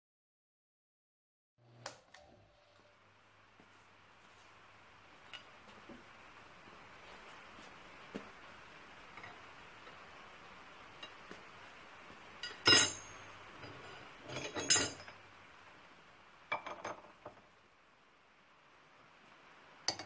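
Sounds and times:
metal tools clinking on vise: 12.4 - 15.2.

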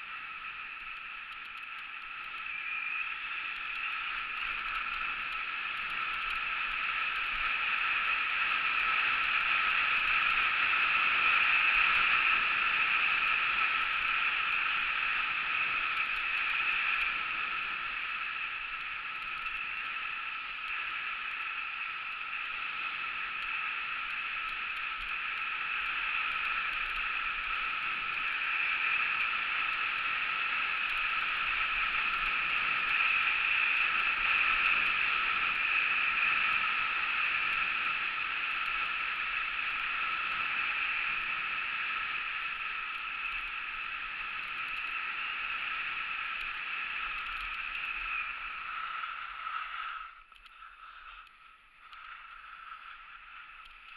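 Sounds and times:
skis hissing over snow: 0.0 - 53.9.

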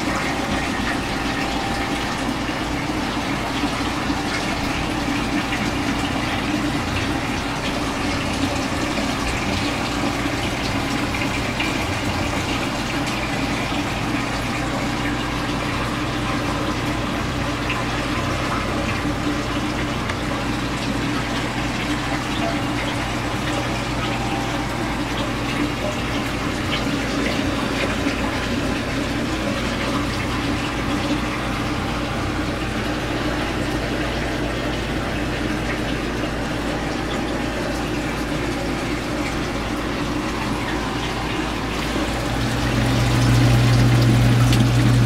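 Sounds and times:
low pump hum: 0.0 - 45.0
rush of moving water: 0.0 - 45.0.

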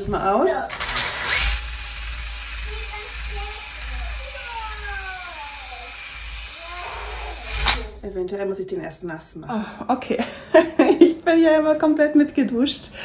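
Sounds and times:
cordless drill running: 0.0 - 8.0.

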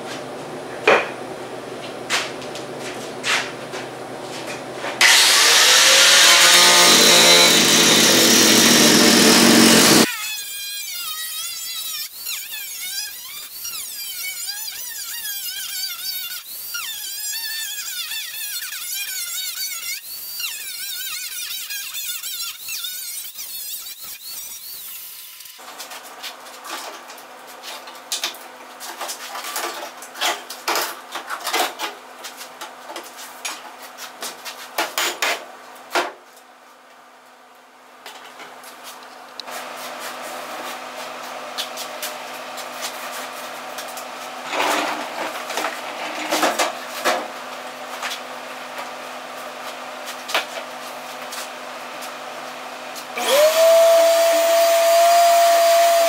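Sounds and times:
angle grinder cutting metal: 5.0 - 25.6, 53.2 - 56.0.

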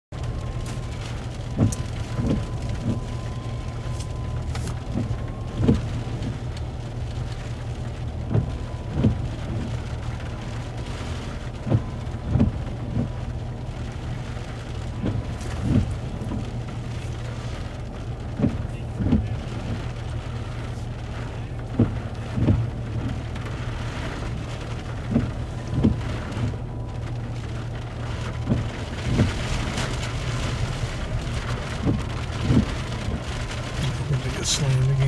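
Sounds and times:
rain falling: 0.1 - 35.0
steady low rumble: 0.1 - 35.0.

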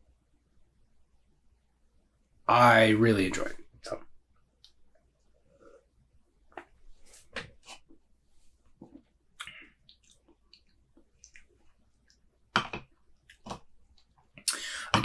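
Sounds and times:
lip smacks and mouth noises: 8.8 - 12.3.

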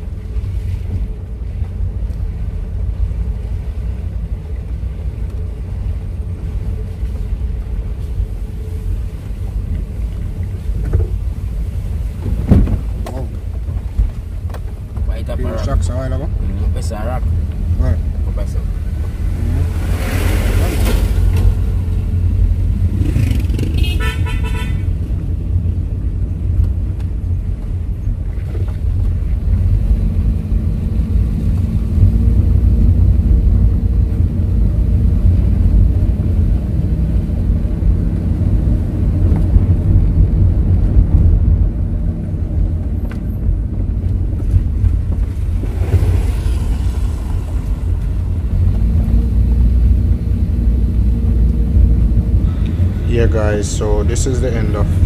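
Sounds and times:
car engine and road noise: 0.0 - 55.0
vehicle horn toot: 23.6 - 24.9.

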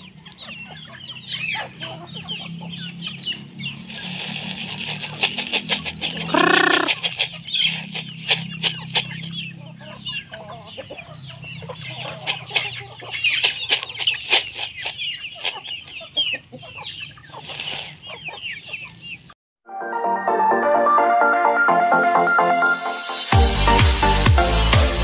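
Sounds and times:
chickens clucking: 0.0 - 19.4.

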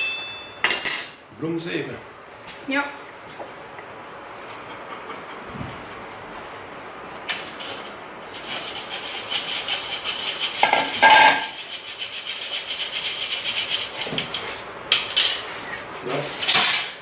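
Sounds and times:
fingers rubbing sieve mesh: 8.4 - 14.4.

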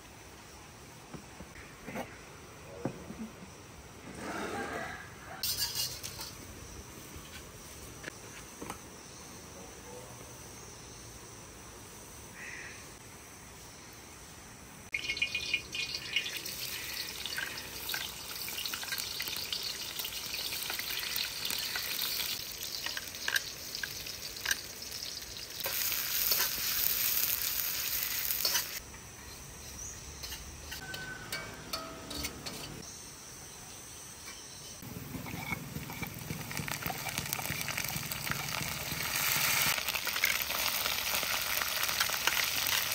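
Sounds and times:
food sizzling in a pan: 5.2 - 7.7, 14.9 - 28.8, 34.8 - 42.9.

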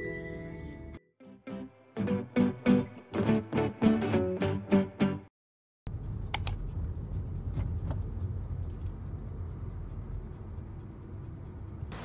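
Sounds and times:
car road and engine rumble: 5.9 - 12.0
sharp clicks: 6.3 - 6.6.

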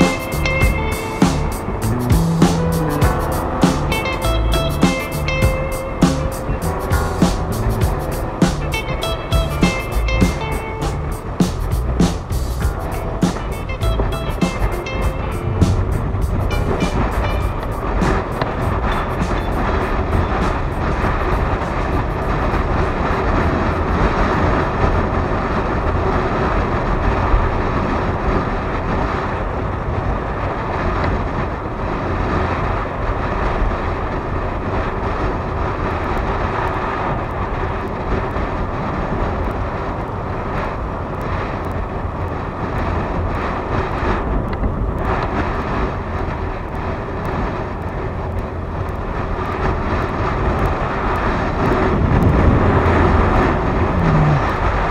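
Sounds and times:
motorcycle engine running: 0.0 - 14.0
wind rushing over microphone: 0.0 - 54.9.

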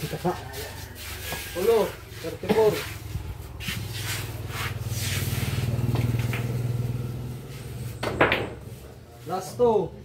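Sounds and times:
vehicle engine pulsing hum: 2.0 - 9.7.

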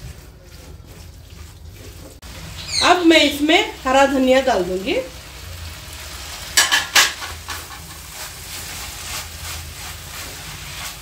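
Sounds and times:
light sizzle: 0.0 - 11.0
spatula scraping frying pan: 6.0 - 11.0.

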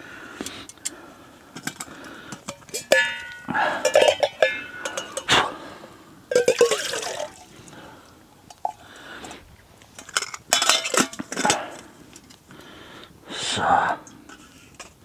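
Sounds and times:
metal mugs clinking: 1.6 - 5.5, 6.3 - 7.5, 10.0 - 12.3
water pouring into metal mug: 6.3 - 7.5.

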